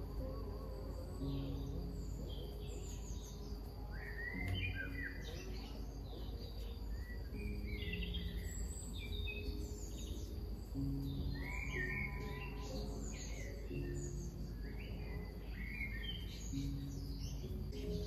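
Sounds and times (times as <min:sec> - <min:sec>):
birds singing and chirping: 0:00.0 - 0:18.0.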